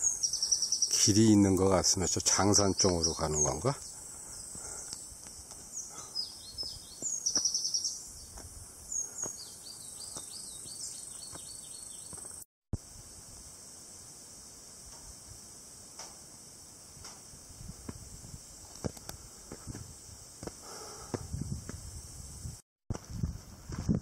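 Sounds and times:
small birds chirping: 0.0 - 12.4
high insect drone: 0.0 - 22.6
footsteps on dirt trail: 6.6 - 7.6, 8.3 - 12.4.

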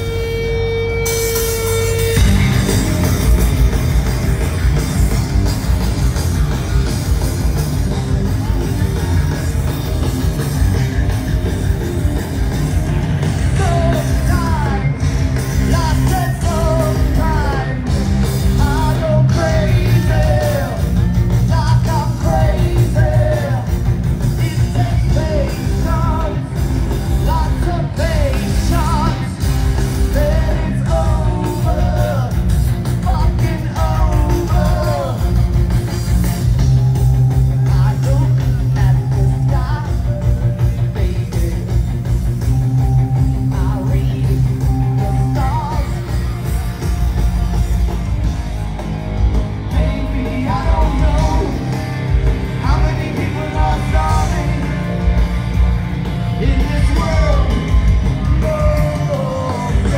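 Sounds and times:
drums: 0.0 - 59.9
electric guitar: 0.0 - 59.9
live rock band playing: 0.0 - 59.9
man singing lead vocal: 13.4 - 35.6, 37.5 - 46.4, 49.7 - 55.2, 56.3 - 59.9.

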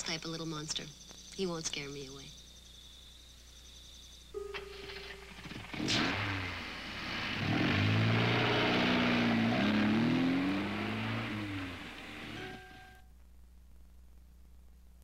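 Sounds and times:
car engine revving: 4.7 - 13.0.

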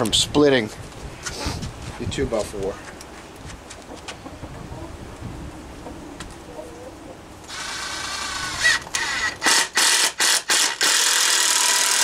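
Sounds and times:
power drill driving screw into wood: 7.5 - 12.0.

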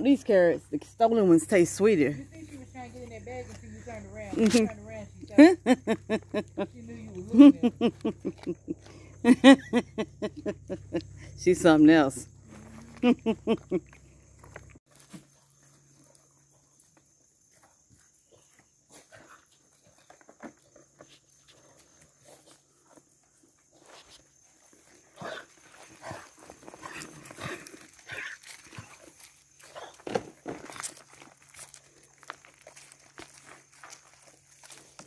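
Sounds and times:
goats munching and snuffling: 0.0 - 35.0
scuffs on gravel: 13.8 - 35.0.

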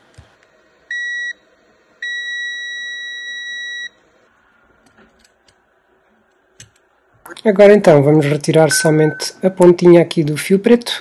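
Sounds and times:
multimeter continuity beep: 0.9 - 1.4, 2.0 - 4.0, 8.7 - 9.4.

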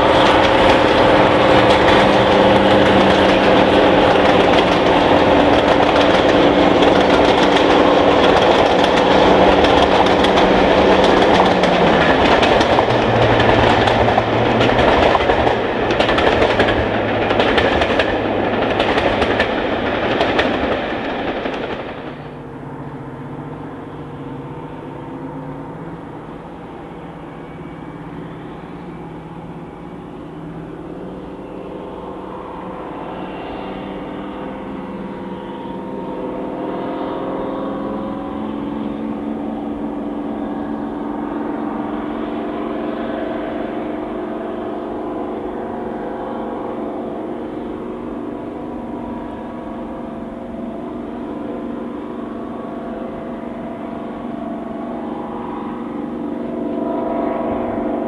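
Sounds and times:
train wheel clatter: 0.0 - 22.4
diesel locomotive engine drone: 0.0 - 58.0.

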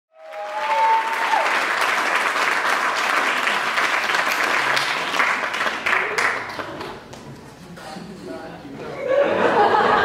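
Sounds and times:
audience applauding: 0.1 - 7.1.

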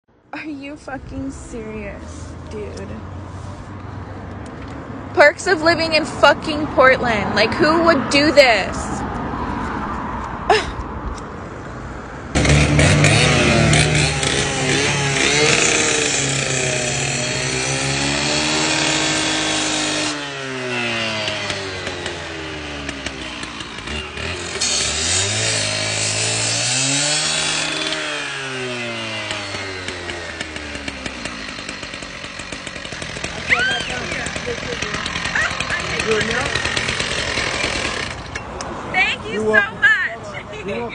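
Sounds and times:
cut-off saw engine running: 12.4 - 38.3
saw disc grinding through steel: 12.4 - 38.5.

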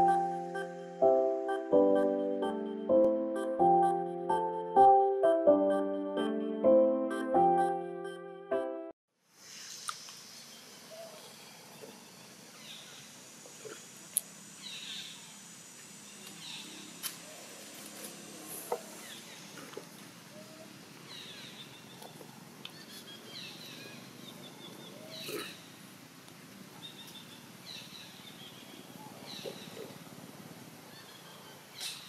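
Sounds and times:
steady high hiss: 0.0 - 4.6, 9.2 - 24.5.

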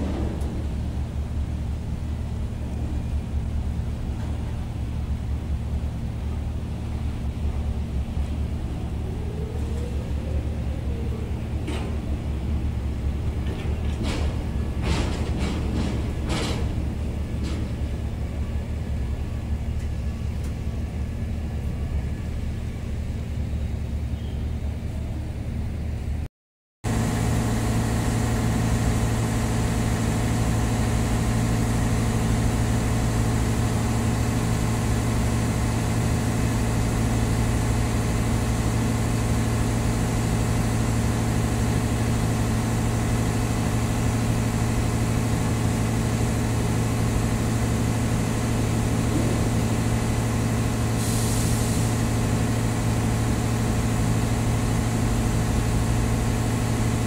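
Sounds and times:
low engine drone: 0.0 - 26.3, 26.9 - 57.0.

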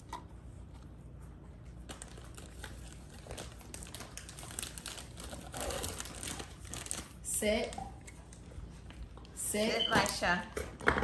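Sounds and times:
packaging crinkling: 1.8 - 7.2.

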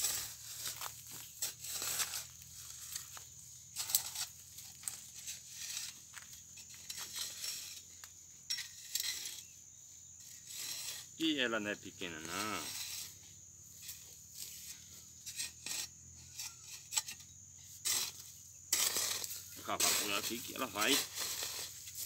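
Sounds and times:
hoe chopping dry dirt: 0.0 - 7.9, 17.8 - 22.0
loose earth crumbling: 0.0 - 9.5, 10.2 - 13.2, 17.8 - 22.0.

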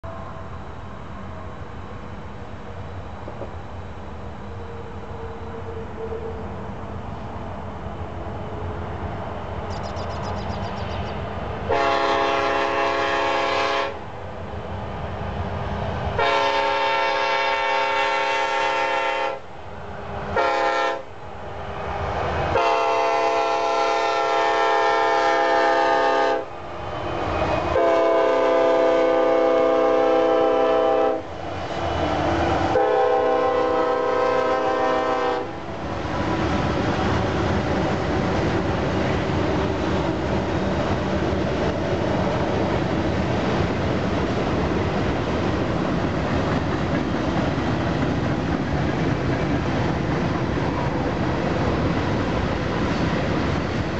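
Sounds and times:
diesel locomotive rumble: 0.0 - 53.9
locomotive air horn: 11.7 - 14.0, 16.2 - 19.5, 20.4 - 21.1, 22.6 - 26.5, 27.7 - 31.2, 32.8 - 35.6.

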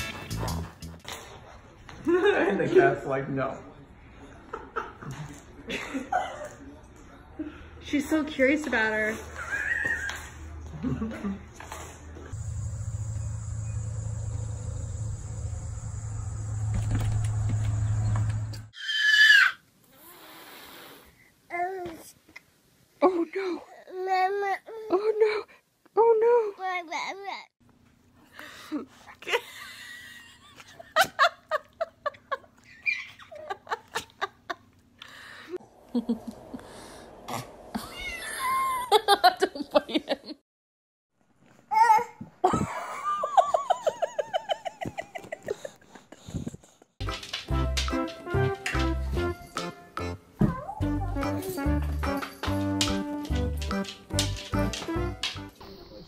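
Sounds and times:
faint high whine: 12.4 - 18.7
steady low hum: 12.4 - 18.7
child squealing: 18.8 - 19.6.

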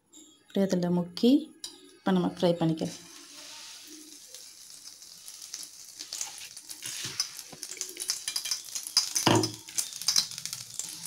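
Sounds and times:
fritter sizzling in hot oil: 2.8 - 11.0.

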